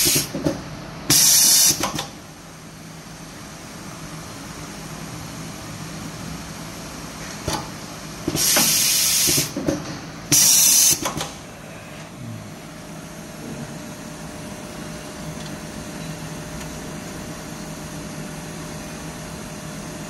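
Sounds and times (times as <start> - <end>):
hissing air bursts: 0.0 - 0.4, 8.3 - 9.6, 10.3 - 11.2
machine low hum: 11.2 - 20.0.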